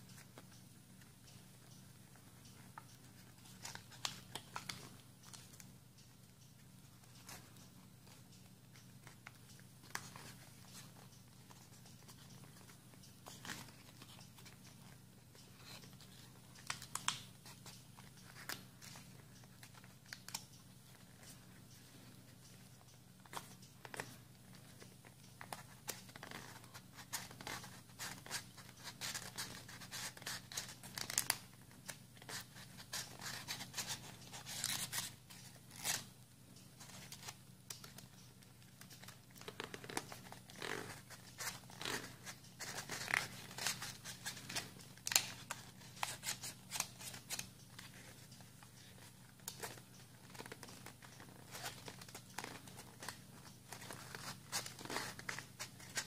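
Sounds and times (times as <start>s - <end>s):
faint low hum: 0.0s - 56.0s
paper crinkling and creasing: 38.8s - 56.0s.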